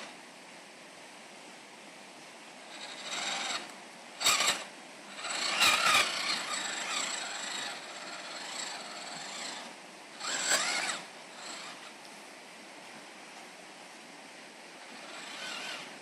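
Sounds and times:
toy truck motor whining: 2.7s - 12.0s, 14.8s - 16.0s.

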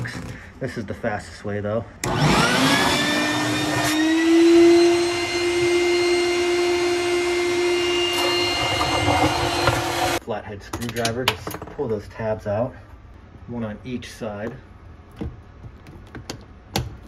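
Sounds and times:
shop vac motor whining: 2.0s - 10.2s
hose sucking water: 6.5s - 10.2s.

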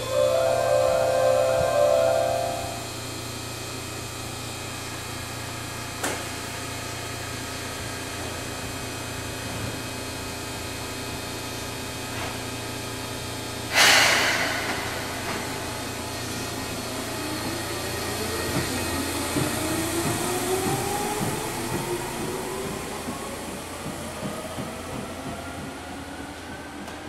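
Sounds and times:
loud hiss of air: 13.7s - 16.9s
train wheels knocking: 18.4s - 25.9s.

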